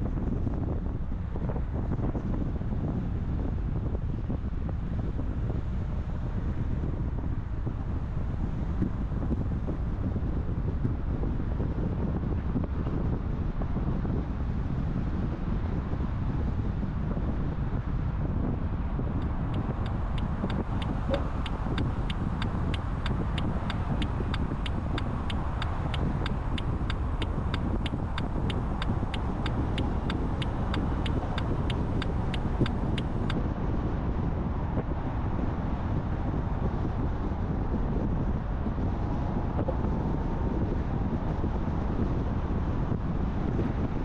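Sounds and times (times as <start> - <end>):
car road and engine noise: 0.0 - 44.0
turn signal ticking: 19.2 - 33.4.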